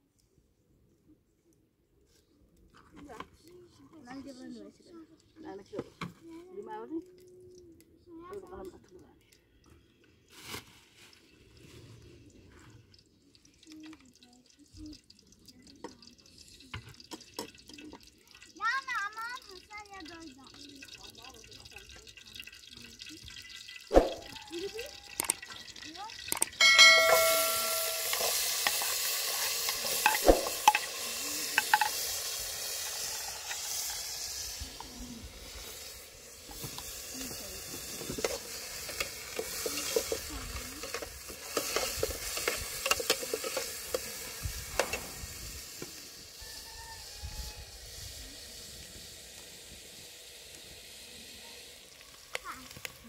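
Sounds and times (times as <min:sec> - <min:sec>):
food sizzling in hot oil: 0:09.9 - 0:53.0
utensil scraping and knocking pan: 0:26.6 - 0:30.9.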